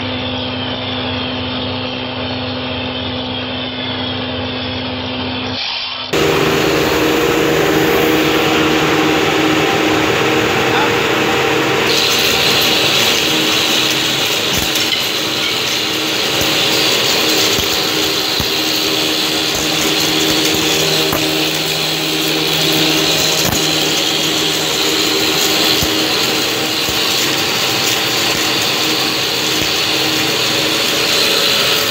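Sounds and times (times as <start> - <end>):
milling machine whining and cutting: 6.1 - 31.9
low hum: 6.2 - 31.9.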